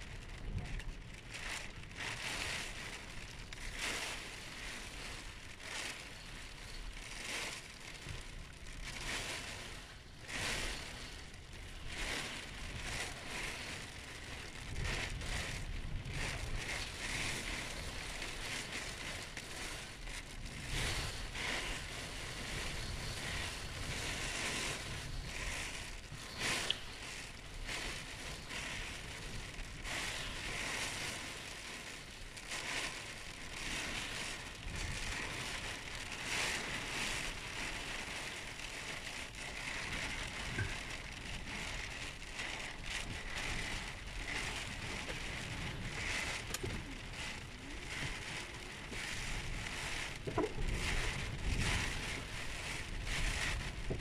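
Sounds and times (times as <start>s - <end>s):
low wind rumble: 0.0s - 54.0s.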